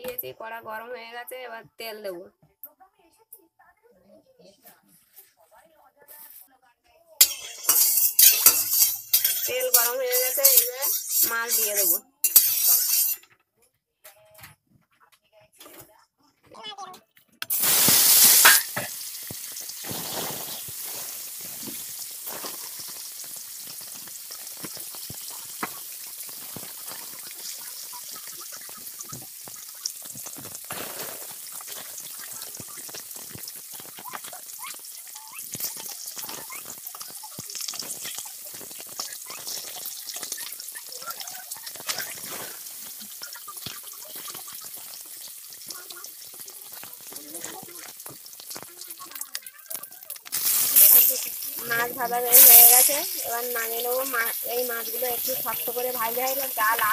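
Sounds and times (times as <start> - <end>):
fish frying in oil: 7.2 - 13.2, 17.4 - 56.9
oil popping and crackling: 7.2 - 13.3, 17.4 - 56.9.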